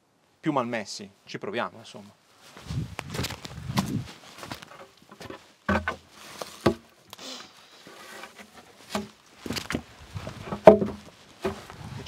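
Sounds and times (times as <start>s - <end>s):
wooden boards knocking: 5.2s - 6.0s, 6.6s - 6.8s, 10.4s - 11.7s.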